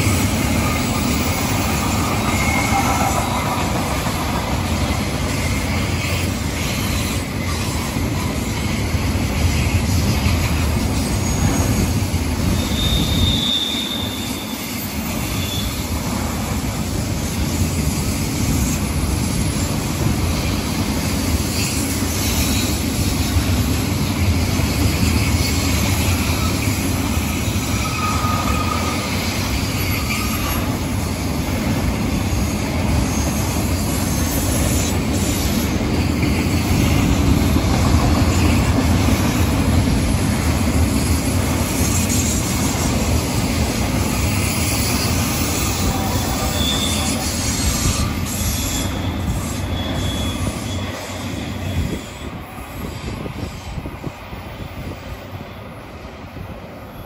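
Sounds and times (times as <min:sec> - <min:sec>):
high wheel squeals: 0:00.0 - 0:16.1, 0:24.8 - 0:31.3, 0:32.2 - 0:39.6, 0:40.8 - 0:53.8
train wheels rumbling on track: 0:00.0 - 0:57.0.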